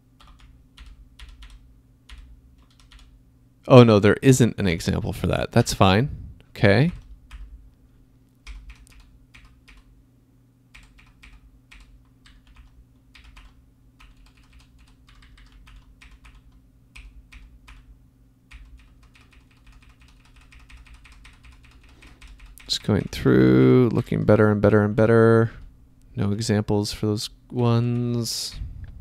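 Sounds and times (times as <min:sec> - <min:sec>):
faint low hum: 0:00.0 - 0:29.0
keyboard keys tapping: 0:00.2 - 0:03.1, 0:08.4 - 0:09.9, 0:10.8 - 0:17.9, 0:18.5 - 0:23.3.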